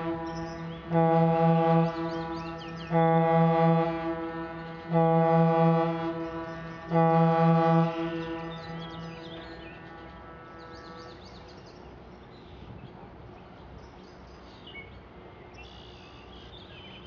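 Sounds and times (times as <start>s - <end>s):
boat horn blasts: 0.0s - 11.4s.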